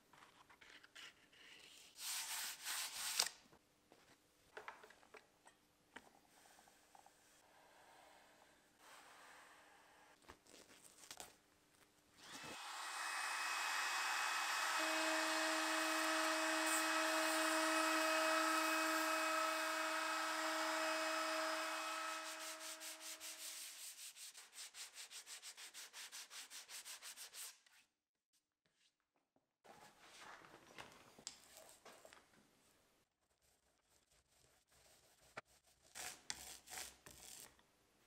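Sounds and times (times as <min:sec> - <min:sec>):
trim router running: 0:12.2 - 0:22.4
router bit rasping wood: 0:12.3 - 0:23.4.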